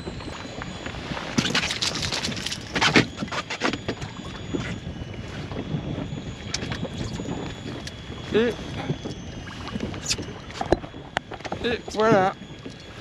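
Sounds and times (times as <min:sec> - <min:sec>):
wind buffeting microphone: 0:00.0 - 0:13.0
water lapping against boat: 0:01.0 - 0:05.6, 0:08.2 - 0:12.0.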